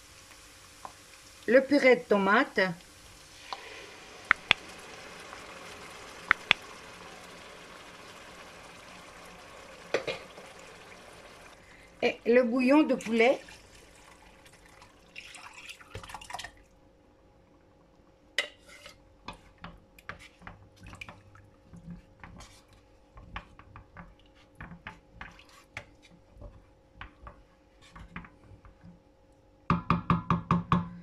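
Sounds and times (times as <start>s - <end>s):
liquid pouring and splashing: 2.9s - 12.0s, 12.9s - 16.7s, 20.2s - 26.6s
wooden spoon stirring in pot: 3.2s - 16.5s, 18.4s - 29.5s.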